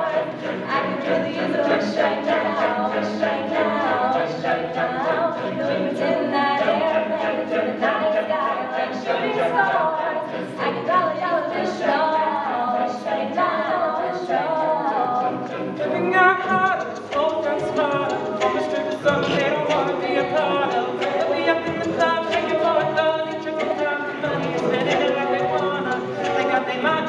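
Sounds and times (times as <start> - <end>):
a cappella group singing: 0.0 - 27.0
vocal percussion beat: 13.6 - 27.0.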